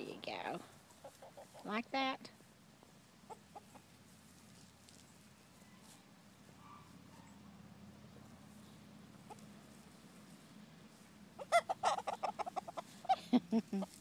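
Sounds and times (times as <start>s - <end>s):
chickens clucking: 0.3s - 1.8s, 2.8s - 4.0s, 8.6s - 10.5s, 11.3s - 14.0s.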